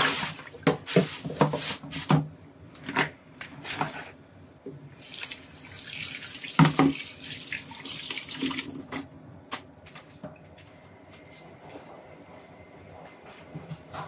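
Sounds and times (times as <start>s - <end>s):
tap running water into bowl: 5.0s - 9.0s.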